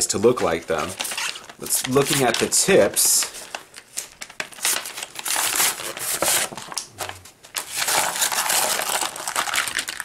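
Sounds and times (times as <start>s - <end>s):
plastic crackling: 0.0s - 10.0s
cardboard ripping: 0.8s - 2.6s, 4.4s - 10.0s.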